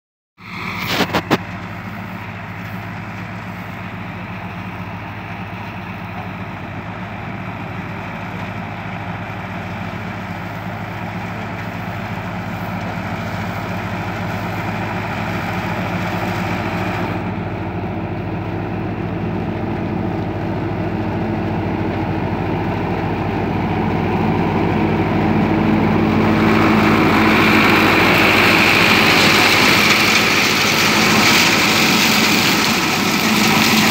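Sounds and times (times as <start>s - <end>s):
tractor diesel engine running: 0.4s - 33.9s
rushing hiss of seeder rotor: 26.2s - 33.9s.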